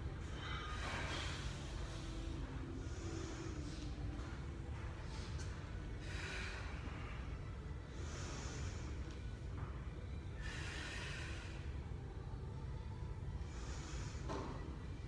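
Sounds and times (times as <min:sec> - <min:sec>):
woman breathing hard: 0:00.2 - 0:04.2, 0:05.1 - 0:09.4, 0:10.0 - 0:12.3, 0:13.4 - 0:14.7.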